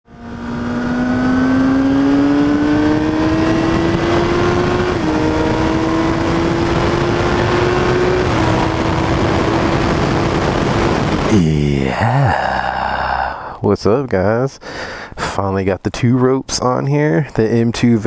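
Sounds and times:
motorcycle engine accelerating: 0:00.1 - 0:11.6
wind rushing: 0:02.7 - 0:12.7.

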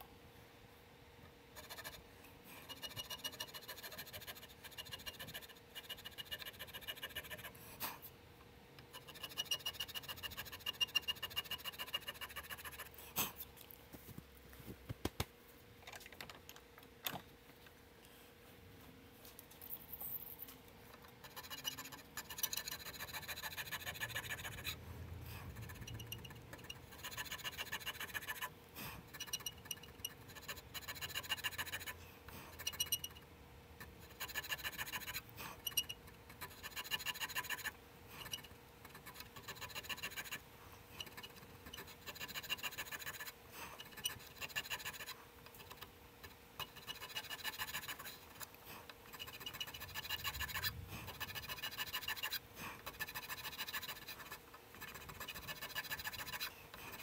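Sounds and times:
faint steady hum: 0:00.0 - 0:57.0
checkering tool rasping strokes: 0:01.6 - 0:07.6, 0:08.9 - 0:13.0, 0:21.0 - 0:24.8, 0:25.4 - 0:33.2, 0:33.8 - 0:40.4, 0:41.0 - 0:45.8, 0:46.6 - 0:57.0.

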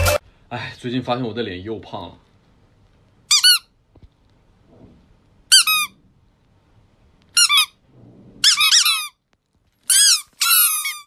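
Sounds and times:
rubber squeaky toy squeaks: 0:03.3 - 0:03.7, 0:05.5 - 0:06.0, 0:07.3 - 0:07.8, 0:08.4 - 0:09.2, 0:09.8 - 0:11.0.

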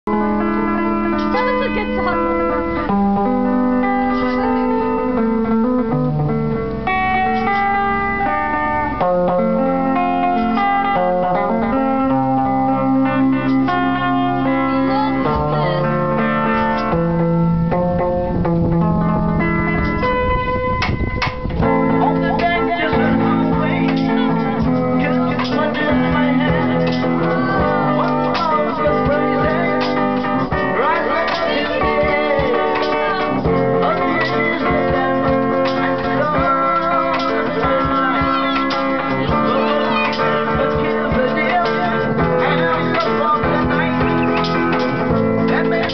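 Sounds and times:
guitar playing: 0:00.0 - 0:45.9
men singing: 0:22.0 - 0:45.9.

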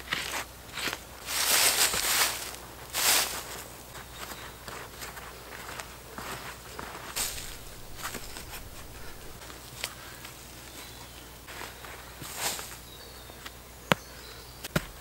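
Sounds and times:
gritty soil scrapes: 0:00.0 - 0:03.7, 0:06.2 - 0:09.4.

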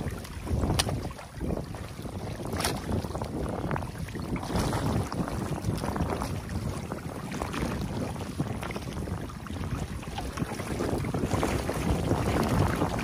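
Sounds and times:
water rushing: 0:00.0 - 0:13.0
shovel splashing in water: 0:00.6 - 0:01.1, 0:02.4 - 0:03.0.

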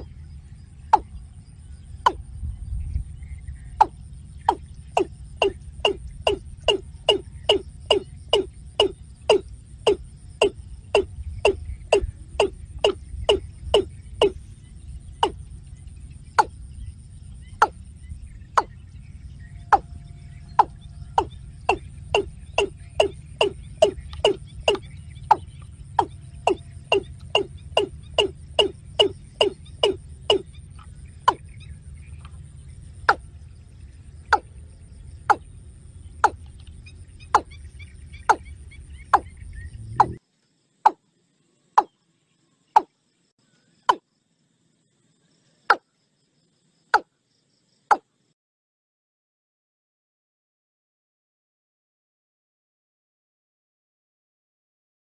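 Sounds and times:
bird calling hollow notes: 0:00.0 - 0:40.2, 0:42.8 - 0:43.0
low background rumble: 0:00.0 - 0:40.2.

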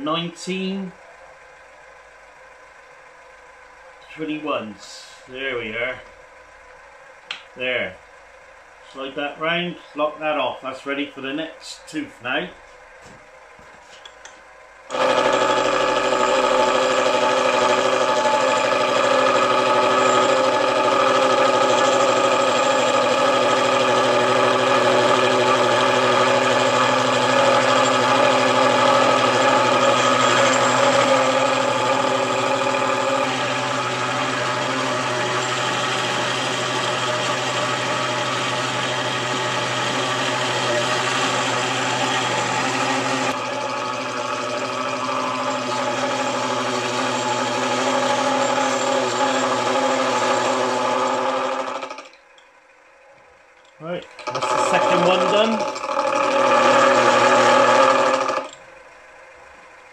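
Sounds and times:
milling machine running: 0:14.8 - 0:52.2, 0:54.0 - 0:59.0
gear cutter cutting metal: 0:14.9 - 0:52.2, 0:54.1 - 0:58.6.

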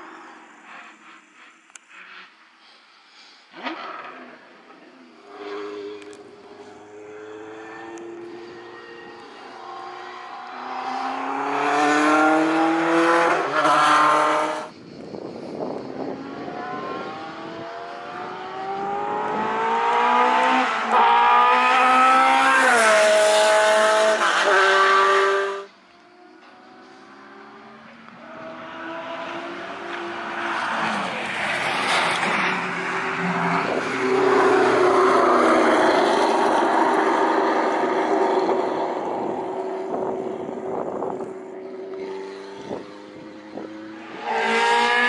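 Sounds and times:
race car engine revving: 0:16.4 - 0:25.7.

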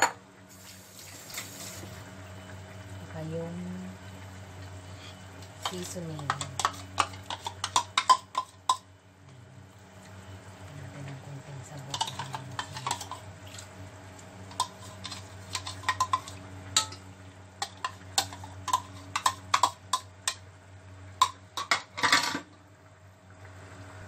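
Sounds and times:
low steady hum: 0:00.0 - 0:24.0
metal spoon scraping ceramic bowl: 0:06.2 - 0:08.9, 0:11.9 - 0:13.7, 0:14.5 - 0:16.9, 0:17.6 - 0:20.4.

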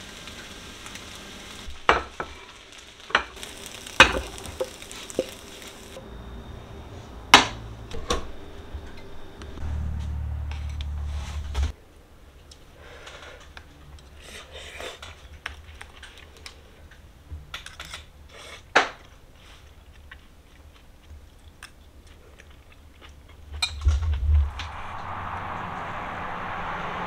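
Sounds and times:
outdoor background noise: 0:00.0 - 0:27.0
chewing: 0:19.5 - 0:23.6.

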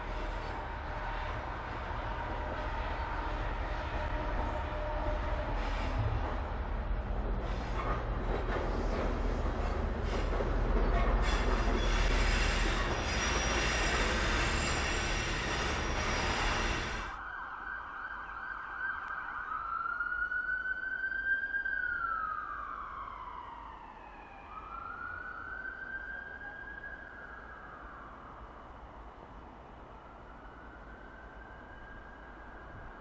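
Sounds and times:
locomotive passing: 0:00.0 - 0:17.2
siren wailing: 0:16.8 - 0:28.4.

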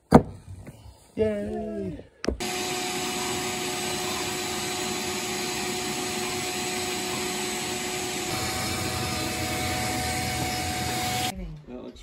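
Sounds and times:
vacuum cleaner running: 0:02.4 - 0:11.3.

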